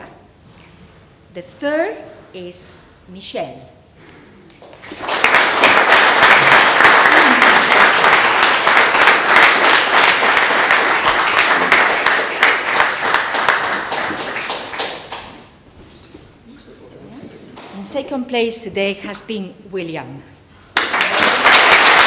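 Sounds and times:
audience applauding: 4.6 - 15.5, 20.7 - 22.0.

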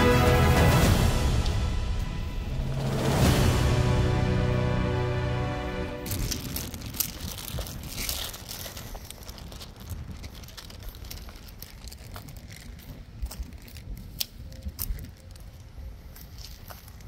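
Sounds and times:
steady low rumble: 0.0 - 13.8
footsteps on dry mud and twigs: 6.0 - 17.0
twigs crackling: 6.0 - 17.0.

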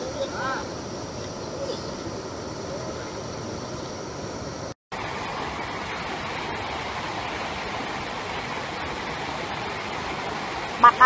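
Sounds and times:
flowing floodwater rushing: 0.0 - 11.0
large waterfall rushing: 4.9 - 11.0.

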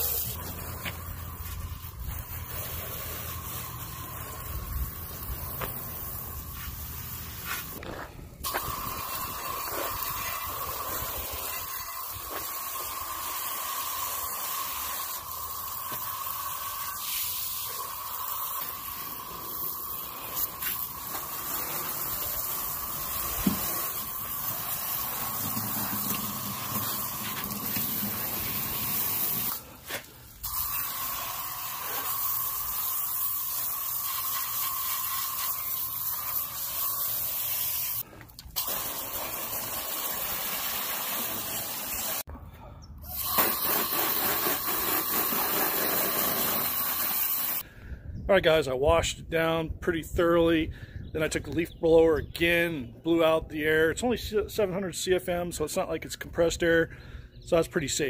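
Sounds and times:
hose nozzle spraying water: 0.0 - 7.8, 8.4 - 42.2, 43.0 - 47.6.

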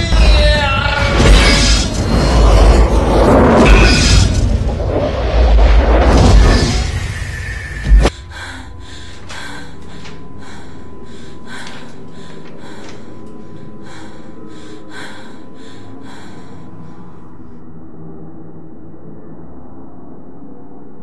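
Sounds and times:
steady low drone: 0.0 - 21.0
person breathing hard: 8.0 - 17.4.

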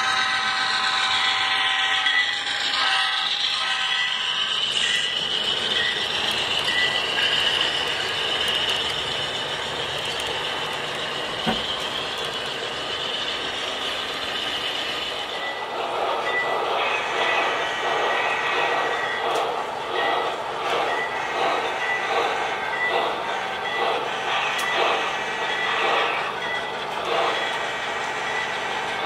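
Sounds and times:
model train wheels rattling on rails: 0.0 - 29.0.

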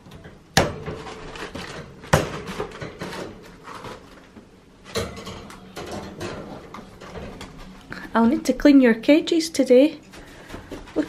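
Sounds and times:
wire cage knocks and rattles: 0.0 - 4.1, 4.9 - 7.7.

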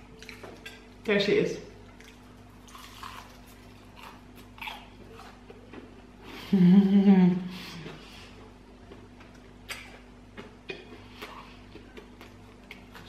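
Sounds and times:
person chewing food: 0.0 - 1.0, 1.8 - 6.3, 7.8 - 13.0
person humming mmm: 6.2 - 8.0.

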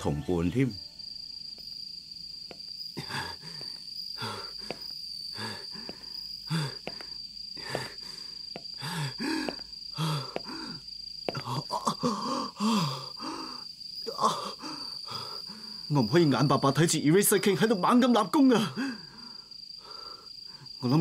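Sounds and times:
crickets trilling: 0.0 - 21.0
man panting with groans: 3.0 - 15.9, 18.6 - 20.8.

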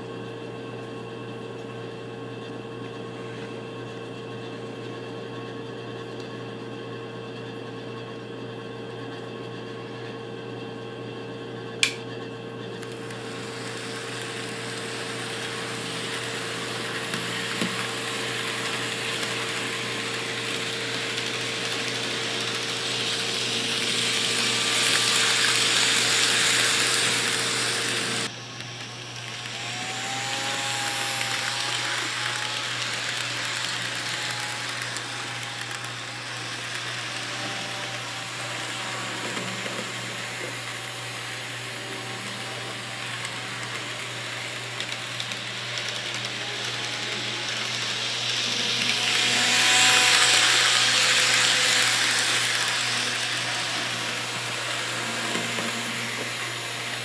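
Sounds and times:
model train whining motor: 11.6 - 57.0
sharp click: 11.8 - 12.0
model train running on track: 12.7 - 57.0.

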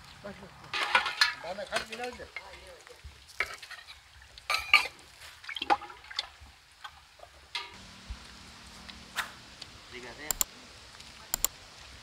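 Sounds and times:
ladles clinking on steel pots: 0.7 - 2.7.

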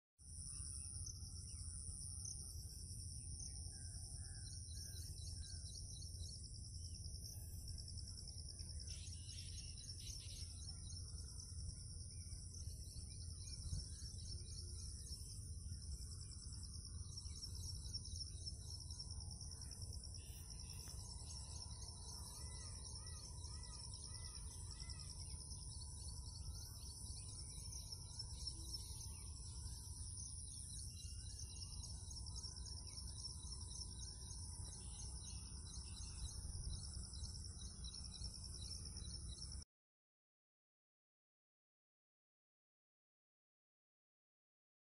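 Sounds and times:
insects trilling: 0.2 - 39.6
low steady rumble: 0.3 - 39.6
bird calling: 19.6 - 29.8.

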